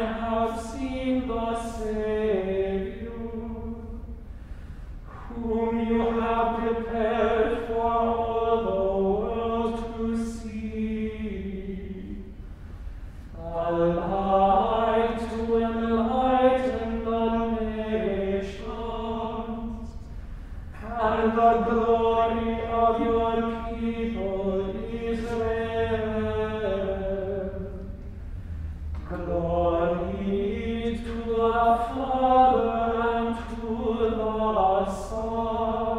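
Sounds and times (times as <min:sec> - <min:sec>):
men chanting together: 0:05.1 - 0:12.1, 0:20.8 - 0:27.4, 0:29.0 - 0:35.9.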